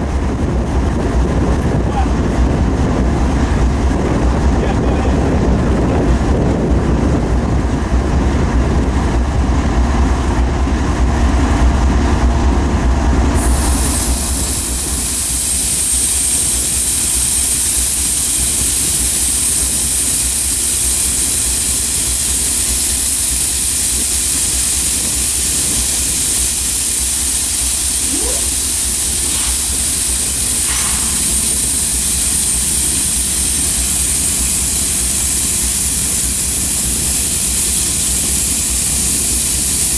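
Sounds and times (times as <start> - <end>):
diesel locomotives idling: 0.0 - 39.9
compressed air hissing: 13.3 - 39.9.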